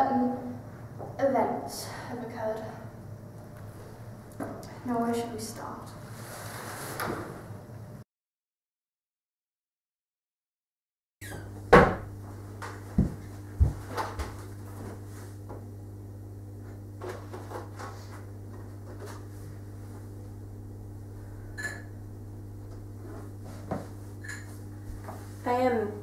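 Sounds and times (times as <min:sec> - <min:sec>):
low hum: 0:18.2 - 0:26.0.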